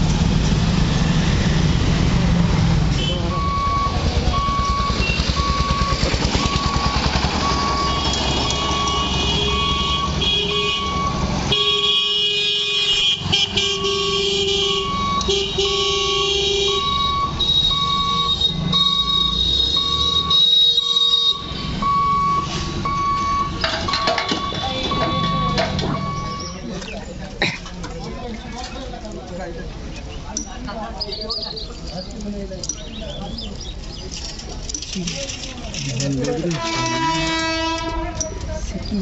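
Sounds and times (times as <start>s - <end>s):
vehicle horns honking: 2.9s - 3.8s, 7.4s - 26.6s, 36.3s - 38.6s
level crossing warning beeps: 3.3s - 10.2s, 14.8s - 15.3s, 16.7s - 26.7s
vehicle engine running: 3.4s - 9.6s.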